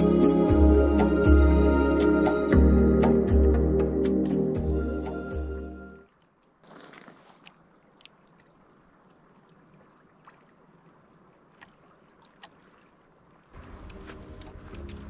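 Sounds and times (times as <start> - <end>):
music: 0.0 - 6.0, 13.8 - 15.0
small water splashes: 6.0 - 15.0
waves lapping against pebbles: 6.4 - 15.0.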